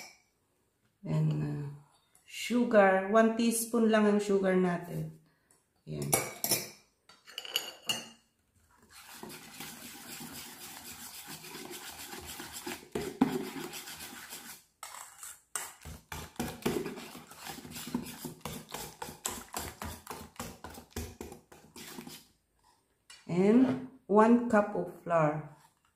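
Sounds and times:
whisk beating batter in metal bowl: 8.8s - 15.0s, 15.8s - 22.2s.

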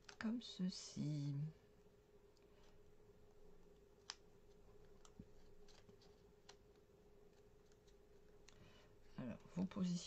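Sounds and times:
low steady hum: 0.0s - 10.0s
paper pieces clicking and tapping: 4.0s - 8.6s.

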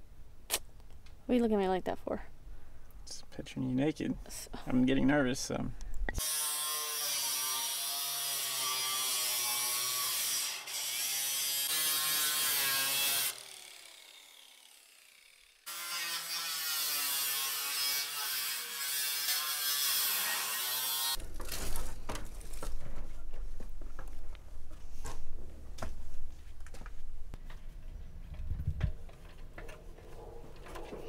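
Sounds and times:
angle grinder cutting metal: 6.2s - 21.2s.

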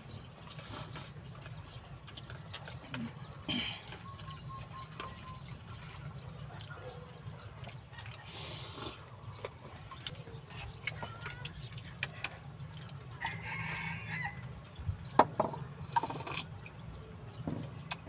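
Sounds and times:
rooster crowing: 13.2s - 14.5s.

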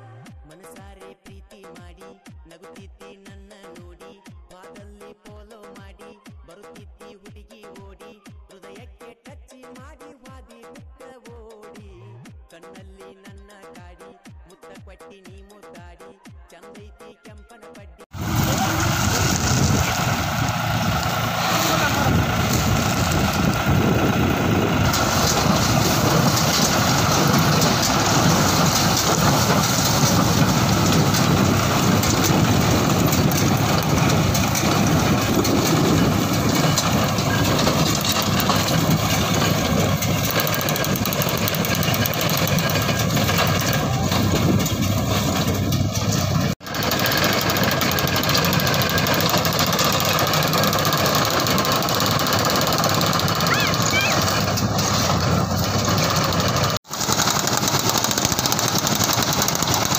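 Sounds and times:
tractor engine running: 18.1s - 59.9s
baler clattering: 18.4s - 59.9s.

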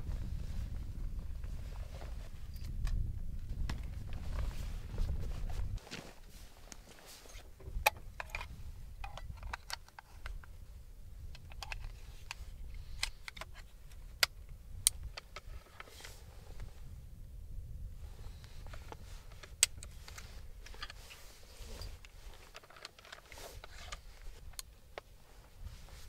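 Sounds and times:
low wind rumble: 0.0s - 22.6s, 23.2s - 26.0s.

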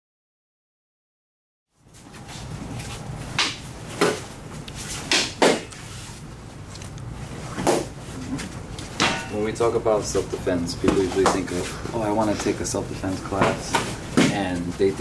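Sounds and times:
low room hum: 1.7s - 15.0s
sticks striking: 3.3s - 4.3s, 5.0s - 5.8s, 8.8s - 9.7s.

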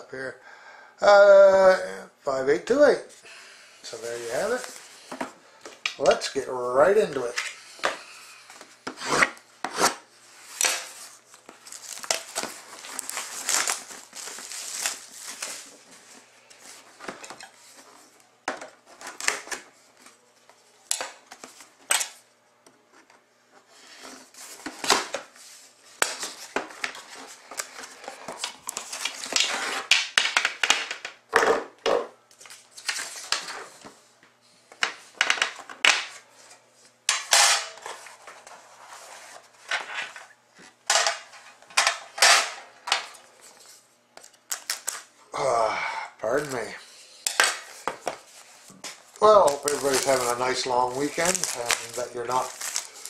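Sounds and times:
plastic wrap crinkling and tearing: 3.9s - 4.9s, 10.4s - 17.8s, 43.4s - 45.1s, 46.2s - 46.7s, 48.2s - 53.0s.

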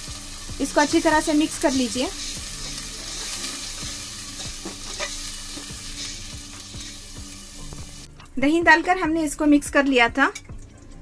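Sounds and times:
sizzling frying hiss: 0.0s - 8.1s.

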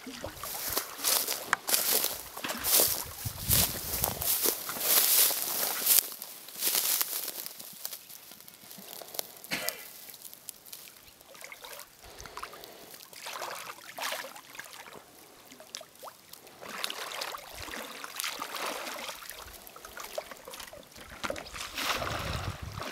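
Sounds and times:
water sloshing and splashing: 0.0s - 7.5s, 10.2s - 22.9s.

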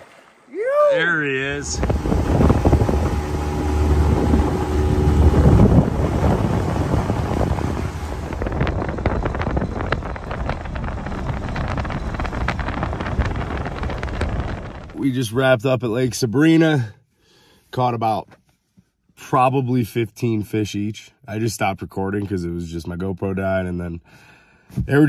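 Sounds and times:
outboard motor running: 1.0s - 15.0s
wind buffeting microphone: 1.3s - 15.2s
short crackles: 8.3s - 15.0s.

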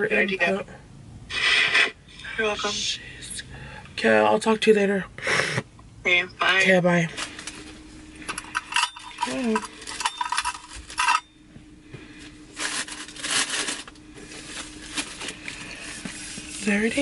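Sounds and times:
tissue paper rustling: 12.5s - 16.8s.

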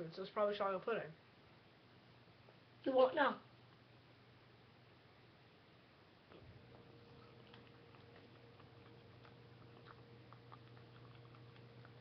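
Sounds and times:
chewing clicks and smacks: 6.4s - 12.0s.

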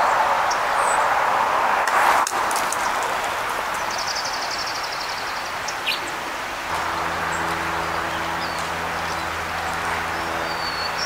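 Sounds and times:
low mechanical hum: 6.7s - 11.0s
songbird trilling: 7.0s - 11.0s.

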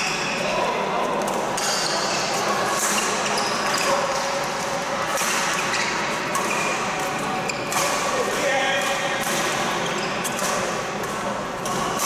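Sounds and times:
echoing hubbub of voices: 0.0s - 12.0s
racket hitting shuttlecock: 5.0s - 12.0s.

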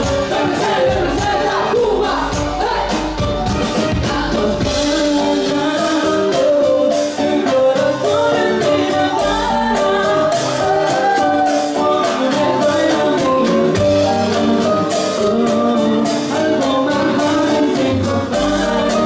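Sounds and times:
live band playing dance music: 0.0s - 19.0s
woman singing: 3.8s - 19.0s.

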